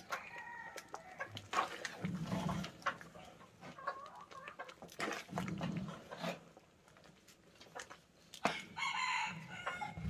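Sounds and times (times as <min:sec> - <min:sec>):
boiling feed: 0:00.0 - 0:08.4
chickens clucking: 0:00.0 - 0:10.0
rooster crowing: 0:08.8 - 0:10.0.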